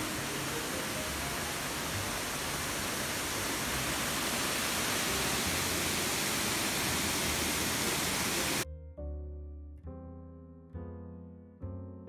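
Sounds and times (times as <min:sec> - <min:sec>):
mountain stream rushing: 0:00.0 - 0:08.6.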